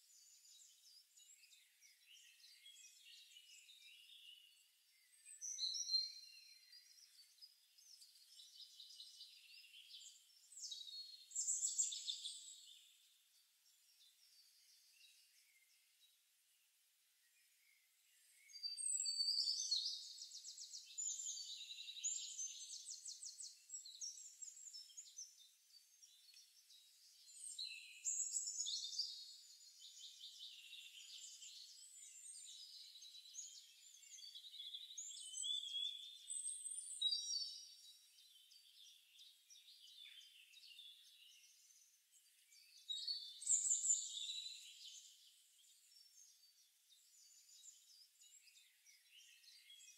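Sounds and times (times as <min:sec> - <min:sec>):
birds chirping and trilling: 0:00.1 - 0:16.2, 0:17.4 - 0:49.9.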